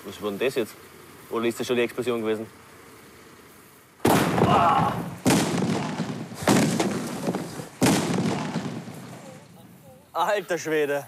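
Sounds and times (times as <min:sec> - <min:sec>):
firecracker bangs: 0:04.0 - 0:09.4.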